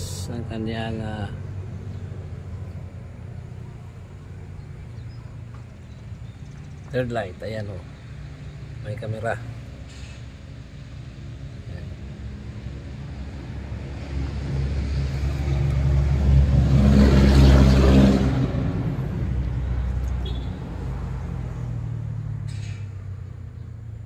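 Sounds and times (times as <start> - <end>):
vehicle engine hum passing by: 0.0 - 24.0.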